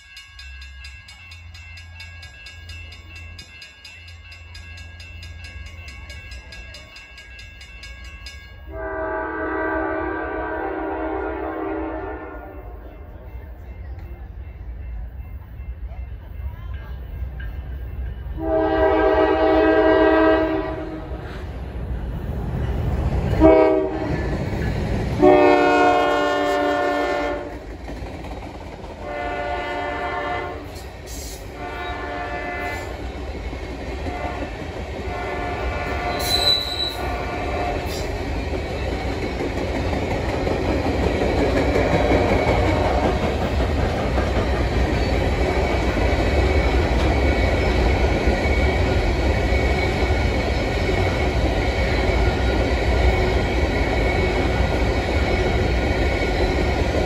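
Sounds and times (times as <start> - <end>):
train rumble: 0.0 - 57.0
locomotive air horn blasts: 8.7 - 12.8, 18.4 - 21.2, 23.4 - 24.2, 25.2 - 27.6, 29.0 - 33.0, 34.1 - 34.5, 35.1 - 38.1
wheels clacking over rail joints: 27.5 - 29.2, 37.9 - 57.0.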